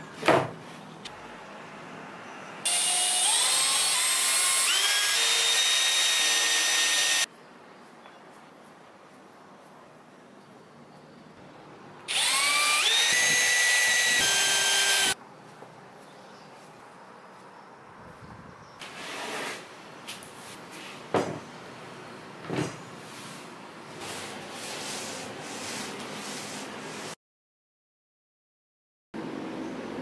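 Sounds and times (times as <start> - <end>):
cordless drill whining: 2.7 - 7.3, 12.1 - 15.2.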